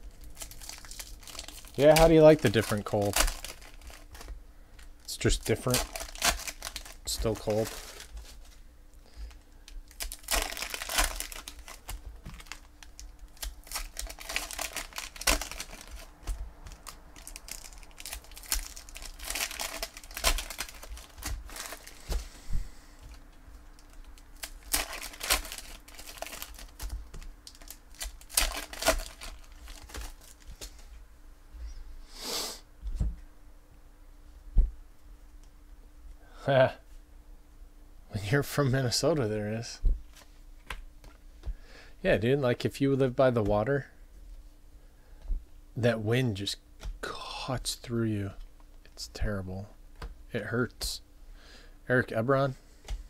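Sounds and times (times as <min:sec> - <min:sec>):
foil wrapper crinkling: 0:00.0 - 0:22.3, 0:23.1 - 0:30.8.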